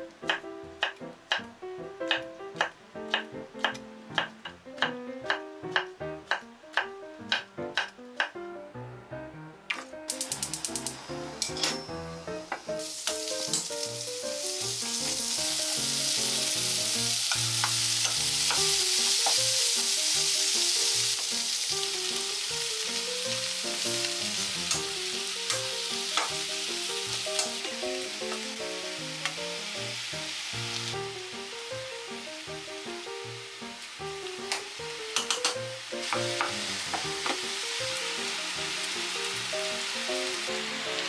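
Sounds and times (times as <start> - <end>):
wooden spatula clicking: 9.7 - 11.0, 17.2 - 19.4, 34.5 - 37.4
vegetables sizzling in hot oil: 10.1 - 41.0.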